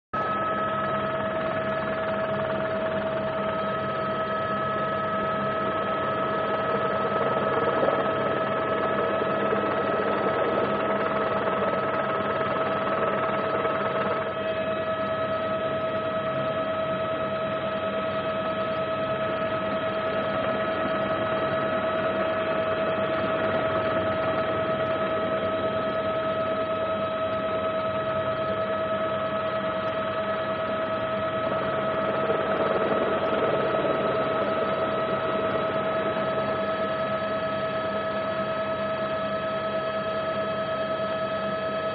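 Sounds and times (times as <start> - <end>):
aircraft engine drone: 0.2 - 41.9.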